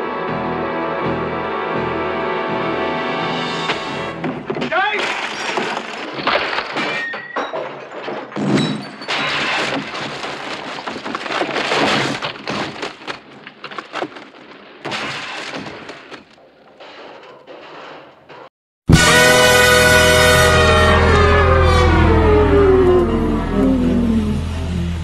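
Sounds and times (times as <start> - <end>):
crashes and smashes: 4.1 - 18.4
wood cracking: 4.2 - 17.8
glass breaking: 4.5 - 14.2.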